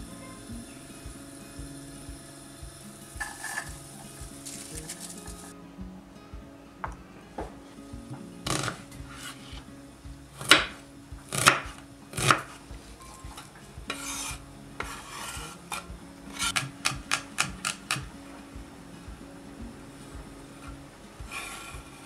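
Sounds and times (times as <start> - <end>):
knife scraping onion across board: 8.5 - 9.6, 13.9 - 16.7, 21.3 - 21.7.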